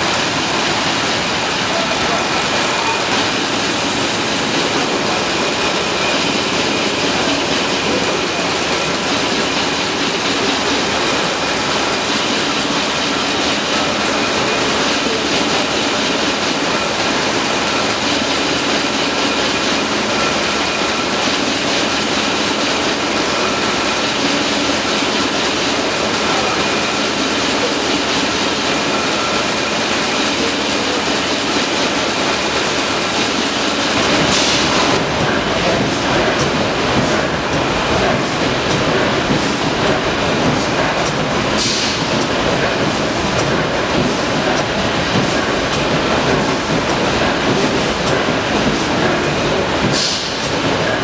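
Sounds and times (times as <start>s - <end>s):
stationary engine clattering: 0.0s - 51.0s.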